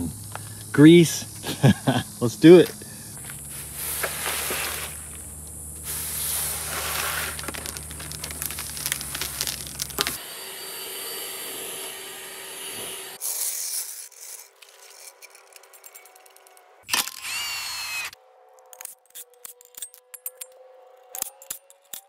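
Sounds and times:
steady low hum: 0.0 - 8.3
tools scraping and rubbing: 5.8 - 10.2, 13.2 - 16.5.

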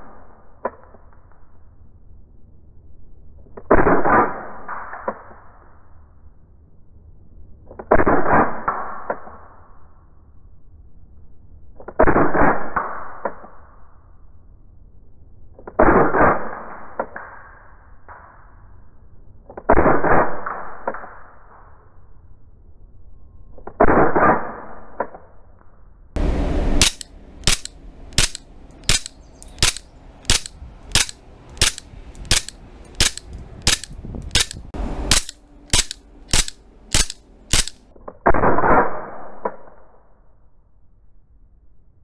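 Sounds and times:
airsoft pistol shots: 26.7 - 37.8
pistol slide clacking: 26.8 - 37.8.

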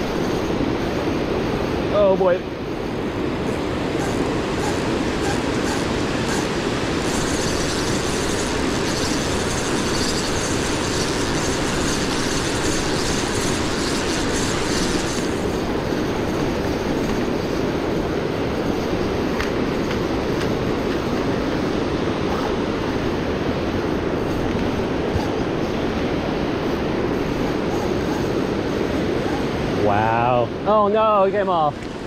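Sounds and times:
river water roaring over dam: 0.0 - 32.0
high hiss with faint ticks: 1.9 - 21.3, 30.7 - 32.0.

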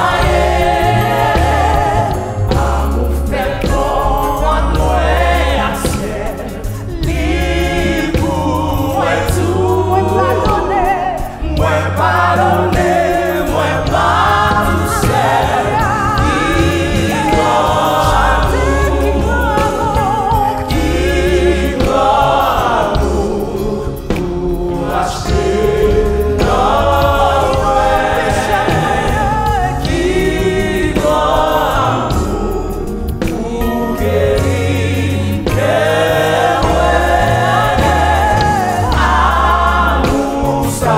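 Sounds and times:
backing choir: 0.0 - 40.9
keyboard accompaniment: 0.0 - 40.9
woman singing lead: 9.6 - 13.0, 13.7 - 21.1.

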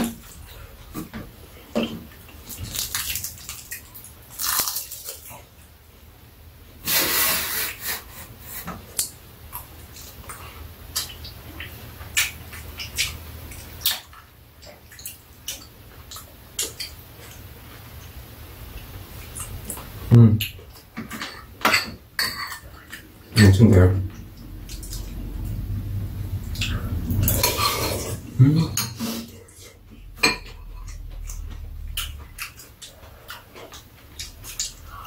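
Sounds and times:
noisy bursts: 22.7 - 35.0
chewing: 29.0 - 35.0.

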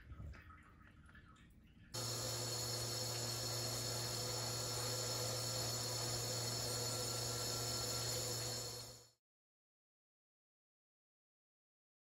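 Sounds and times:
water hissing and splashing: 2.0 - 9.0
espresso machine pump hum: 2.0 - 9.1
high steady tones: 2.0 - 9.1.

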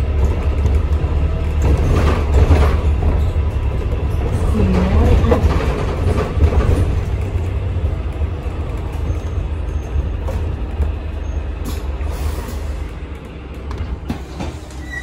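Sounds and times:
body clicks and rattles: 0.0 - 12.0
bus engine rumble: 0.0 - 15.0
road noise: 0.0 - 15.0.

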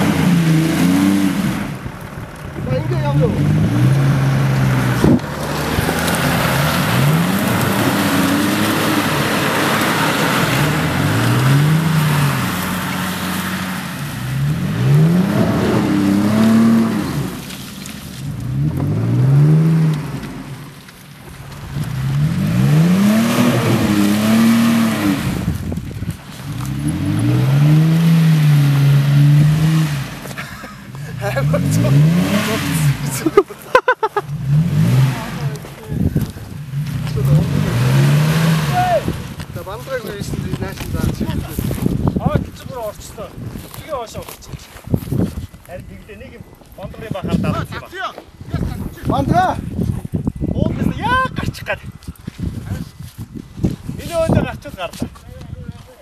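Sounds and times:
engine revving: 0.0 - 2.0, 2.8 - 20.8, 21.6 - 25.8, 26.4 - 30.4, 31.0 - 33.4, 34.2 - 41.8
tyres churning through mud: 0.0 - 56.0.

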